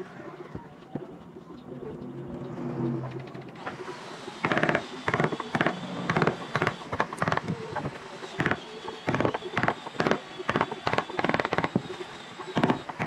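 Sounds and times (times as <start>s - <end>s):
chisel scraping wood: 3.5s - 13.0s.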